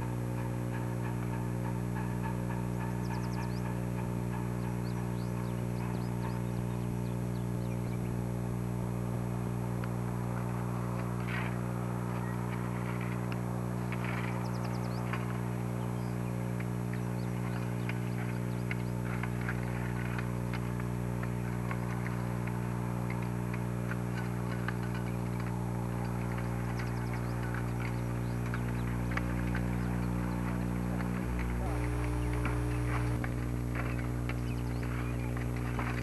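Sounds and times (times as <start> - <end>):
steady electrical hum: 0.0 - 36.0
faint scattered clicks: 9.8 - 36.0.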